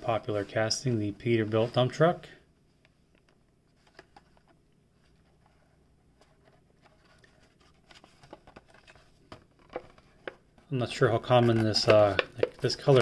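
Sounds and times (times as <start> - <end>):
plastic packaging clicks and taps: 8.2 - 10.4, 11.5 - 13.0.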